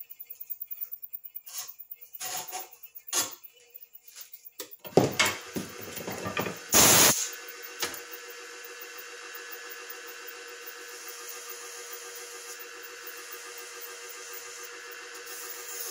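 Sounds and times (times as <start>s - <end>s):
wood lathe humming: 7.5s - 15.9s.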